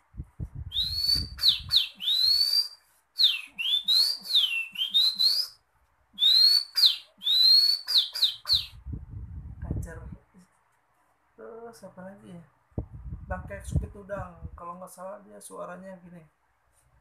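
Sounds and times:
man whistling birdsong: 0.7 - 5.6, 6.2 - 8.8.

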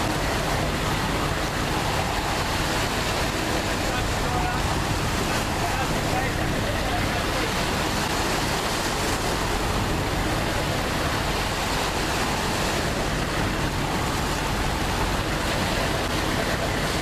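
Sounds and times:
boat engines droning: 0.0 - 17.0
rushing water: 0.0 - 17.0.

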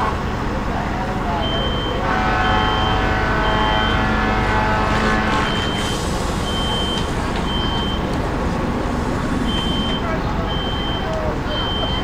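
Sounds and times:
fire engine pump rumble: 0.0 - 12.0
high electronic beep: 5.4 - 5.9, 9.5 - 12.0.

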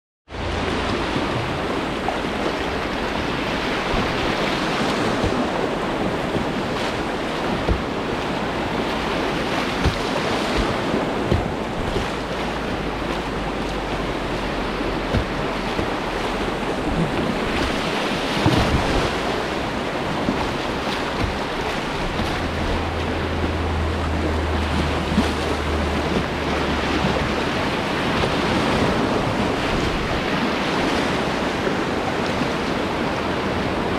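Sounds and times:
churning river water: 0.3 - 33.9
short knocks: 3.9 - 14.2.

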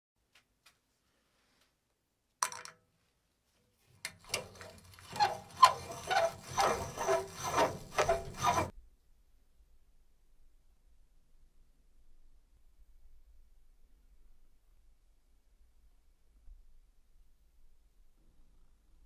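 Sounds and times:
scraping strokes with ringing note: 4.3 - 8.7.

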